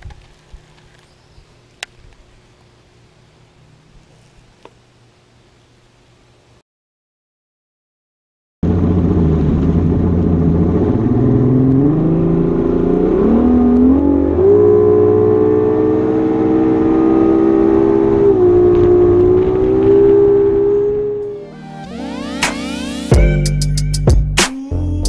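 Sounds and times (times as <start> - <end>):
outboard motor running: 8.6 - 11.6.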